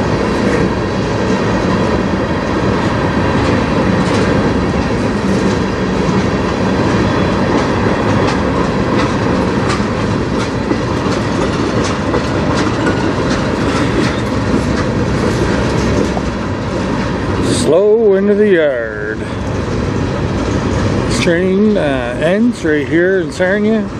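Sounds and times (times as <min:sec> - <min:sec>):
train wheels rumbling on rail: 0:00.0 - 0:23.9
clicks over rail joints: 0:03.4 - 0:16.4.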